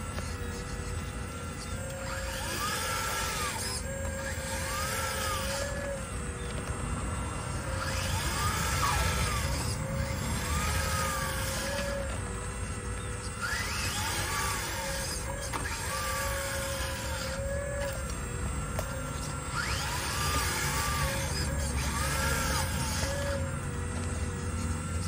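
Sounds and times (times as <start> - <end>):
hydraulic pump whine: 0.0 - 25.0
rising and falling valve whines: 0.0 - 25.0.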